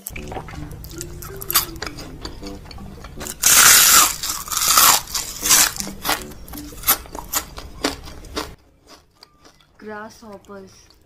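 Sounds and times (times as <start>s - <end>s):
crunching fried insects: 0.0s - 11.0s.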